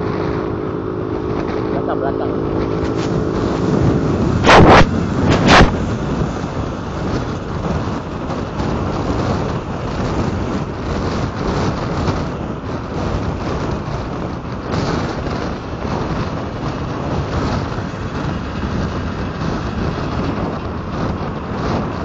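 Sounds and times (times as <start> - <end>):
loud noise blasts: 0.0 - 12.3
motorcycle engines: 0.0 - 22.0
wind rush on microphone: 0.0 - 22.0.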